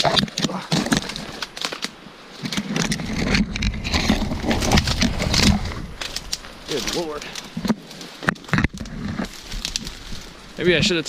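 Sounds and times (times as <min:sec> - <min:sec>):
twigs crackling and snapping: 0:00.0 - 0:11.0
low rumble: 0:03.2 - 0:07.5.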